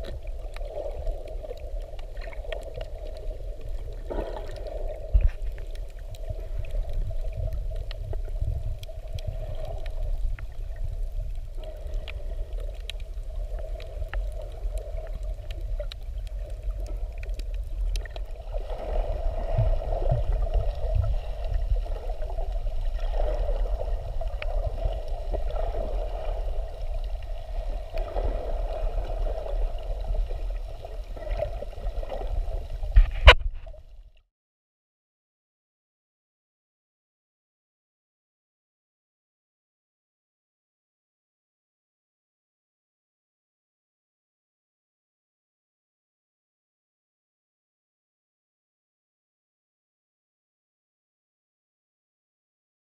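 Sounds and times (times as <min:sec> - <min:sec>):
underwater rumble of moving water: 0:00.0 - 0:34.2
faint clicks: 0:11.6 - 0:18.3.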